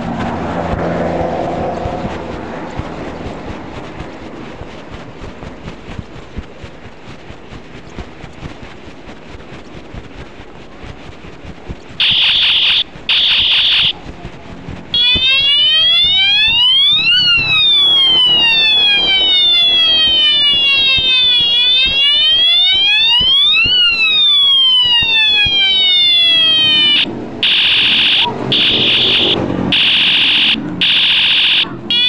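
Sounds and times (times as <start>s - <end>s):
wailing siren: 0.0s - 8.7s, 12.0s - 32.0s
high electronic beeps: 12.0s - 14.0s, 14.9s - 32.0s.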